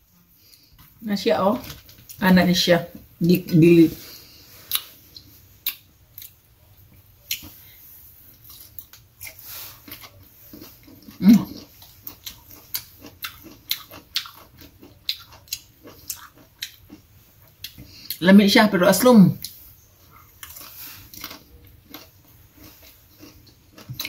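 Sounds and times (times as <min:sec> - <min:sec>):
person chewing mango: 0:04.1 - 0:18.2, 0:19.4 - 0:24.0.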